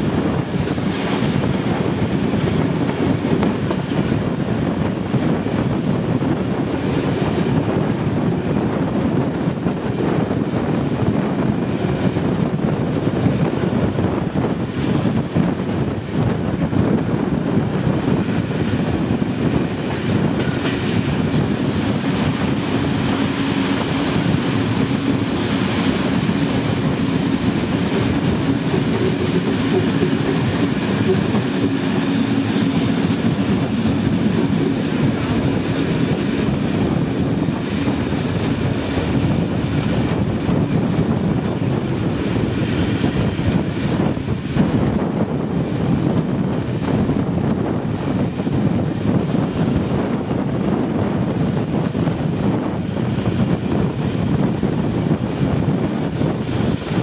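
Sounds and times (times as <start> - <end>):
train rumble: 0.0 - 57.0
wheels clacking over rail joints: 14.6 - 52.5.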